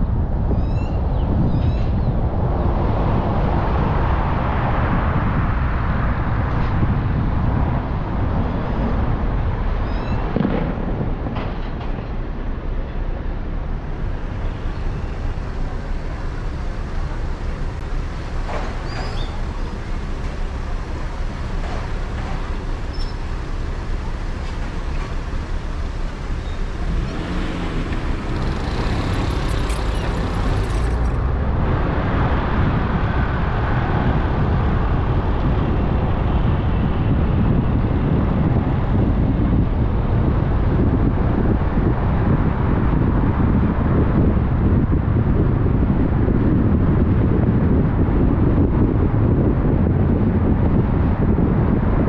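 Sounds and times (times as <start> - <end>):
idling car engines rumble: 0.0 - 52.0.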